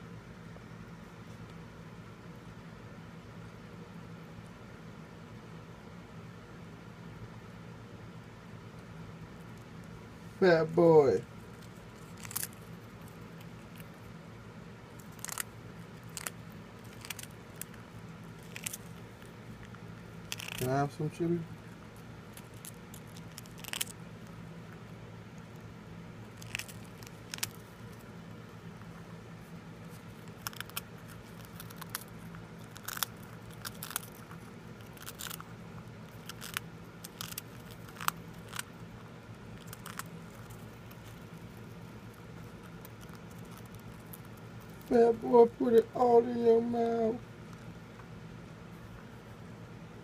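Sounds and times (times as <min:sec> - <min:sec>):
low steady hum: 0:00.0 - 0:50.0
hamster crunching cracker: 0:10.7 - 0:45.2.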